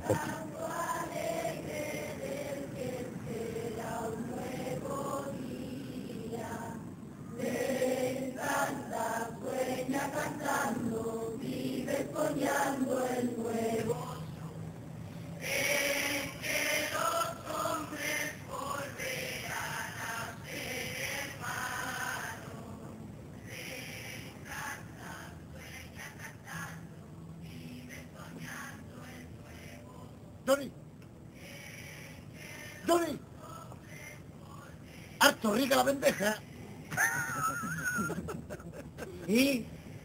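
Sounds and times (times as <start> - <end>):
children's choir singing: 0.0 - 14.5, 15.4 - 30.2.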